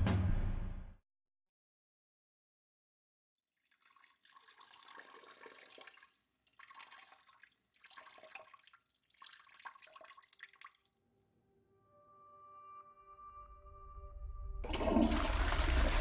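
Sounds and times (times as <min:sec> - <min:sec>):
liquid trickling and splashing: 0:03.6 - 0:11.0, 0:14.6 - 0:16.0.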